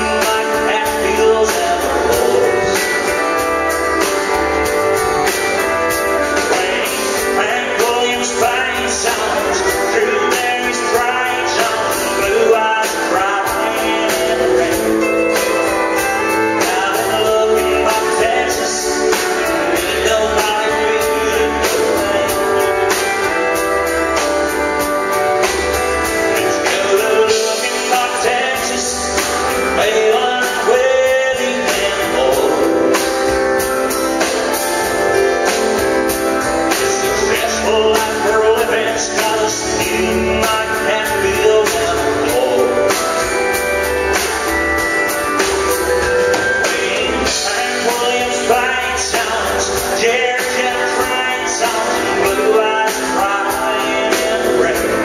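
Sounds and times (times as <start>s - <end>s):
man singing: 0.0s - 44.5s, 45.1s - 55.0s
bass guitar: 0.0s - 55.0s
drums: 0.0s - 55.0s
pedal steel guitar: 0.0s - 55.0s.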